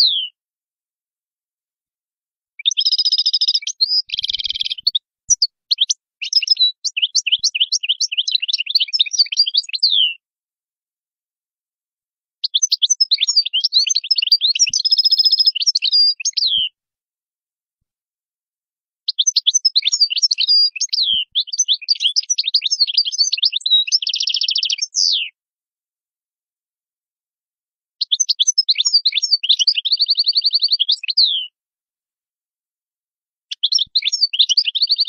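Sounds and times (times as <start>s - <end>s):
goldfinch singing: 0.0s - 0.3s, 2.6s - 10.2s, 12.4s - 16.8s, 19.1s - 25.4s, 28.0s - 31.5s, 33.5s - 35.0s.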